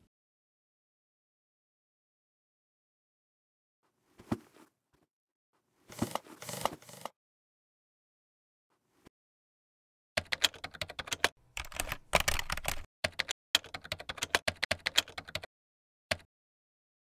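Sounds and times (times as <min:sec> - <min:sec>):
fast typing on keyboard: 0:10.2 - 0:15.5.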